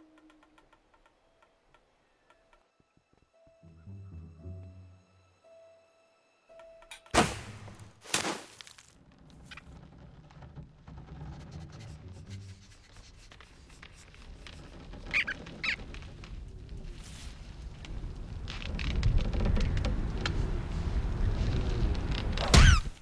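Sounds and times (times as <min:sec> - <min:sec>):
low steady background: 0:00.0 - 0:08.0
short high squeaks: 0:15.0 - 0:15.9.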